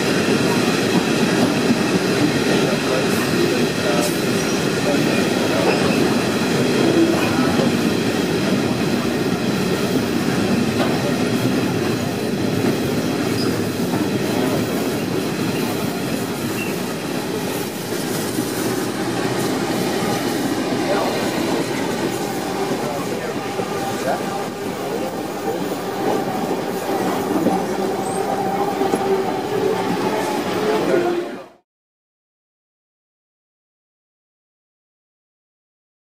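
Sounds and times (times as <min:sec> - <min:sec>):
freight train rumbling past: 0:00.0 - 0:31.6.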